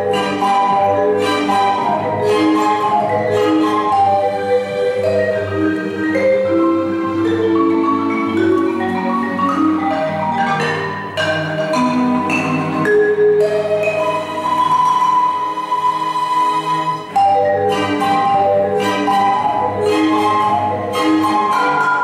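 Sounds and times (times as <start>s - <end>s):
marimba played with mallets: 0.0s - 22.0s
strings holding bowed notes: 0.0s - 22.0s.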